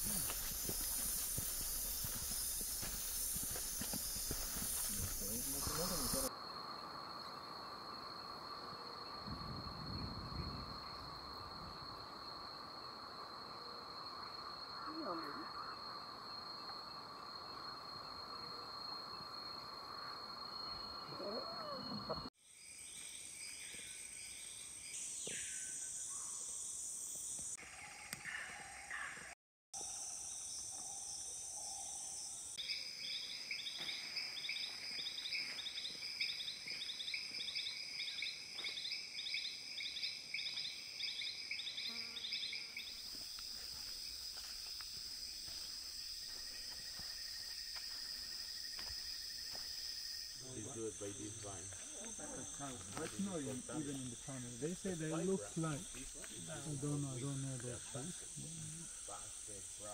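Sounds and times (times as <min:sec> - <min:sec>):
insects droning: 0:00.0 - 0:59.9.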